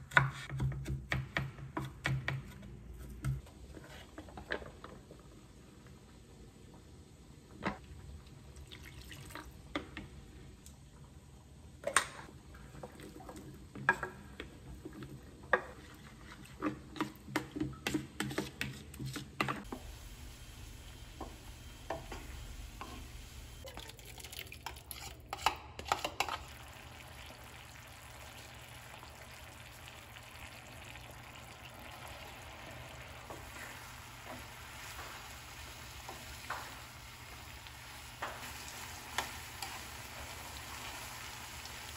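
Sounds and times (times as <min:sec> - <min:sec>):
pan sizzling: 0:19.6 - 0:23.7, 0:26.0 - 0:41.9.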